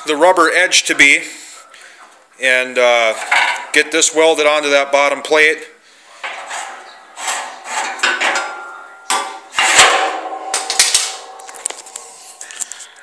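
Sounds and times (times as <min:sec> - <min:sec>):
steel clanking together: 0:03.2 - 0:03.8, 0:06.2 - 0:12.9.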